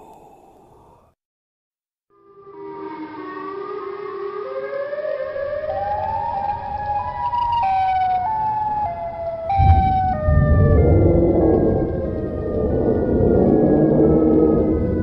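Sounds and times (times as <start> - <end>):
siren-like wail: 2.5 - 15.0
deep rumble: 9.5 - 15.0.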